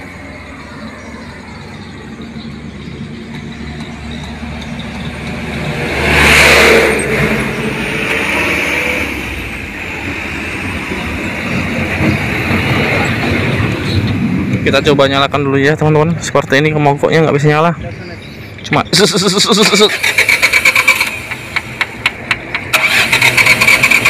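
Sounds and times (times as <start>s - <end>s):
vehicle passing by: 0.0s - 15.5s.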